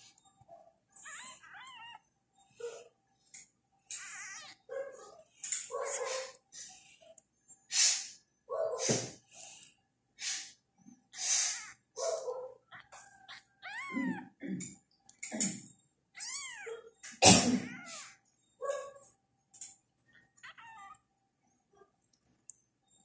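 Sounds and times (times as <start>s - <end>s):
kitten meowing: 1.0s - 2.0s, 3.9s - 4.6s, 12.7s - 14.3s, 16.2s - 16.9s, 17.6s - 18.2s, 20.4s - 21.0s.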